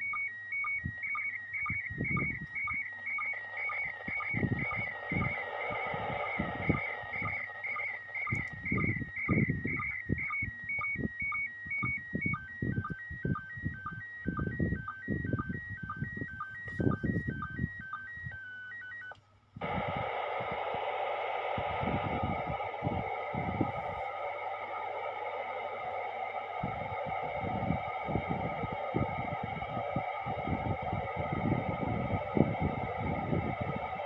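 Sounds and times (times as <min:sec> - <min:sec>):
warbling radio signal tones: 0:00.0 - 0:34.0
bursts of noise: 0:01.7 - 0:10.0, 0:19.6 - 0:34.0
radio static: 0:03.2 - 0:09.8, 0:19.6 - 0:34.0.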